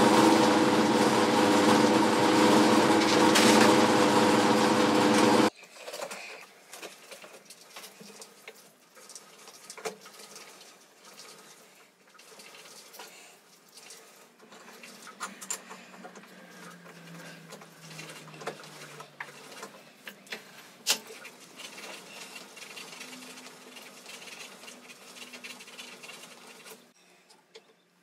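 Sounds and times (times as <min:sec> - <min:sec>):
lathe motor hum: 0:00.0 - 0:05.5.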